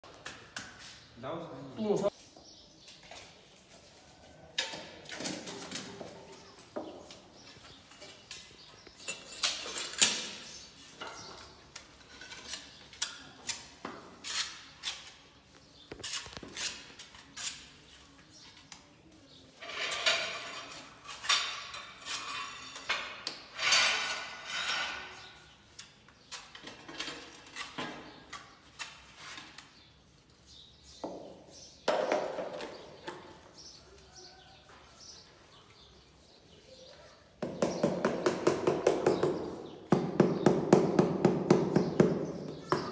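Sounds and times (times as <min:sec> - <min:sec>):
trowel scraping mortar: 0:11.4 - 0:18.0
sharp taps and knocks: 0:37.4 - 0:42.9.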